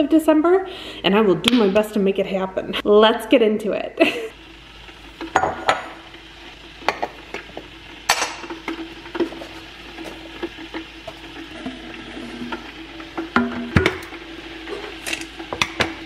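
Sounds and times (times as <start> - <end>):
mugs clinking on countertop: 5.3 - 6.0, 6.8 - 7.5, 8.1 - 9.4, 13.2 - 14.1.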